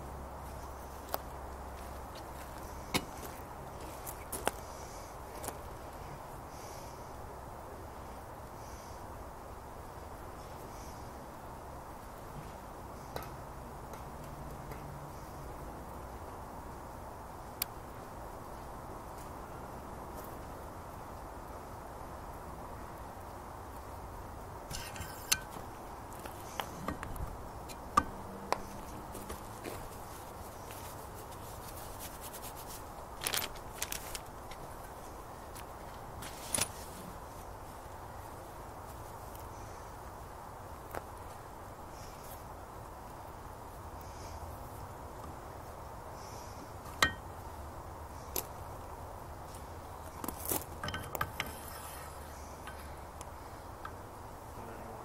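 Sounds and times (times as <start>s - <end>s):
background hiss: 0.0s - 55.0s
low background noise: 0.0s - 55.0s
parts clicking and scraping: 12.4s - 15.4s, 24.7s - 37.4s, 49.5s - 54.1s.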